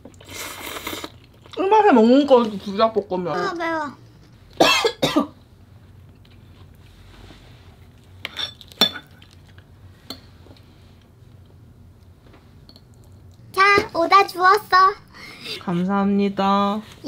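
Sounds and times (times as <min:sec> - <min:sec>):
person coughing: 0:04.6 - 0:05.3
faint tableware clatter: 0:08.2 - 0:09.3.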